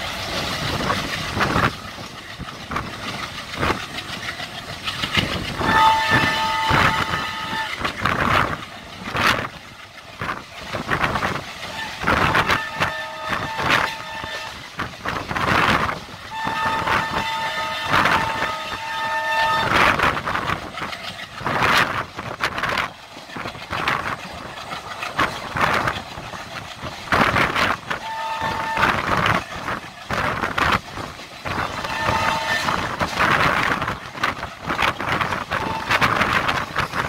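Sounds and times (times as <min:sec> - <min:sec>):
train wind and wheel noise: 0:00.0 - 0:37.0
locomotive horn blast: 0:05.6 - 0:08.0, 0:11.7 - 0:14.7, 0:16.3 - 0:20.1, 0:28.0 - 0:29.3, 0:31.6 - 0:33.0, 0:35.5 - 0:36.2.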